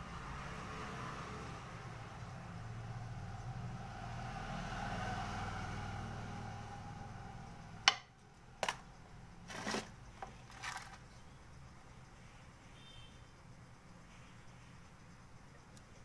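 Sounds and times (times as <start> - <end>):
small metal tools clicking and rattling: 8.6 - 11.2.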